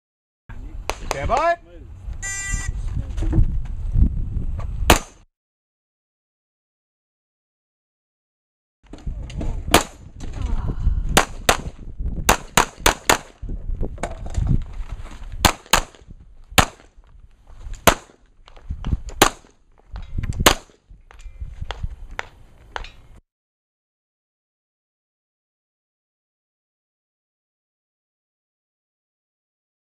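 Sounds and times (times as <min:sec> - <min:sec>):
pistol shots: 0:04.9 - 0:05.2, 0:09.7 - 0:10.0, 0:11.2 - 0:13.4, 0:15.4 - 0:16.0, 0:16.6 - 0:16.8, 0:17.8 - 0:18.2, 0:19.2 - 0:19.5, 0:20.4 - 0:20.7.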